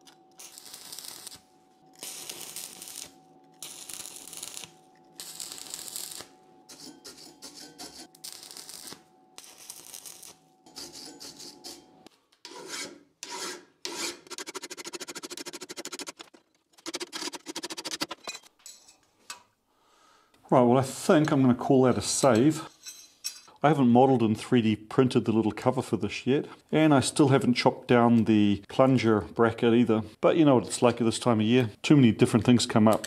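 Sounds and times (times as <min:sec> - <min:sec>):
arc welding crackling: 0:00.0 - 0:11.5
steady hum: 0:00.0 - 0:12.1
hand file rasping on steel: 0:06.7 - 0:08.1, 0:10.7 - 0:16.1.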